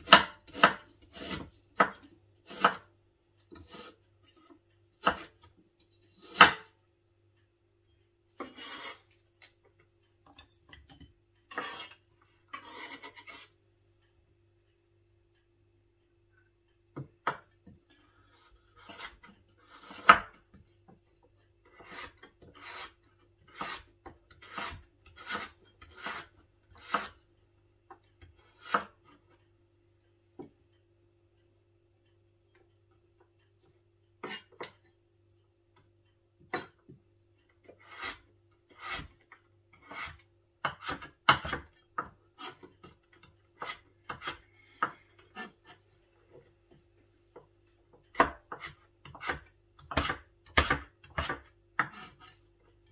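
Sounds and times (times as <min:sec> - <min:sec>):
knife slicing on cutting board: 0:08.4 - 0:09.0.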